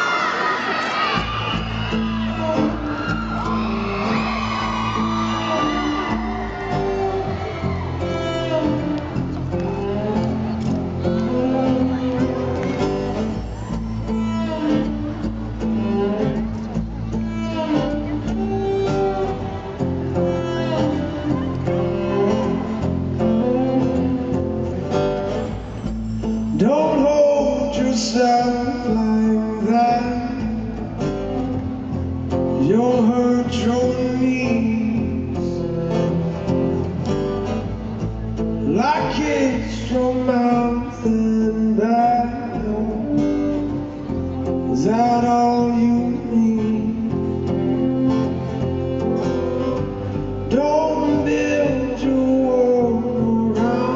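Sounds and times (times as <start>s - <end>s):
acoustic guitar strumming: 1.2s - 53.9s
man singing: 26.5s - 30.8s, 32.5s - 36.4s, 38.6s - 43.8s, 44.4s - 48.0s, 50.5s - 53.9s.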